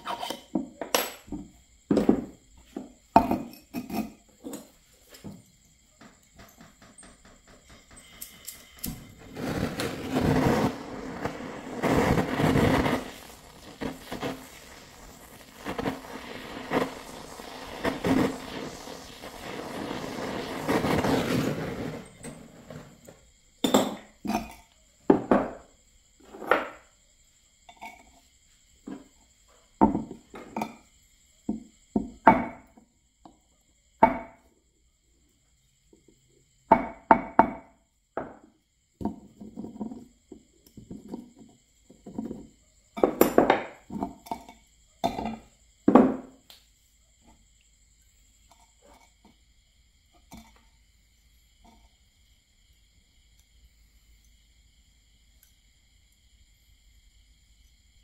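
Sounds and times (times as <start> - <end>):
sharp knocks and metallic clinks: 0.2 - 9.1, 23.0 - 25.6
gas torch burning: 3.2 - 24.6.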